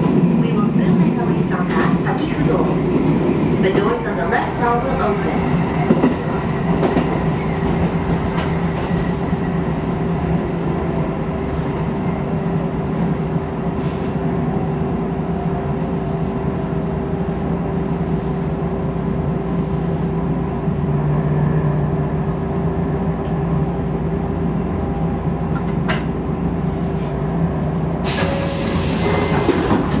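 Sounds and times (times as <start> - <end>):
electric train hum: 0.0 - 30.0.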